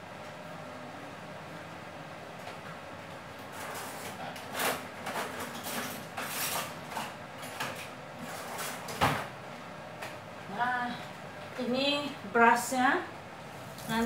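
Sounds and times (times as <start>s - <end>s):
utensils scraping and rustling: 3.5s - 9.0s.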